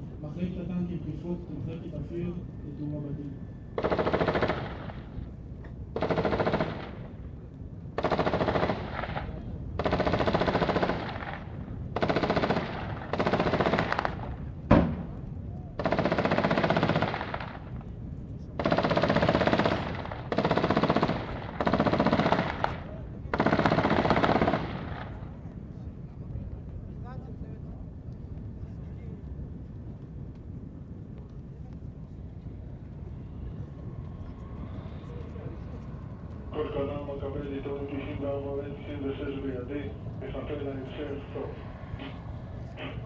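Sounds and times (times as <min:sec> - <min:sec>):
machine-gun fire bursts: 0:03.8 - 0:05.2, 0:06.0 - 0:07.1, 0:08.0 - 0:15.1, 0:15.8 - 0:17.7, 0:18.6 - 0:25.2.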